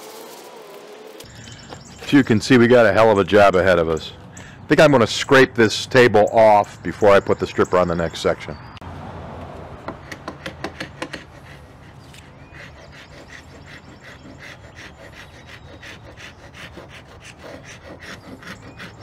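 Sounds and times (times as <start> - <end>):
scraper scraping wooden bench: 9.8 - 19.0.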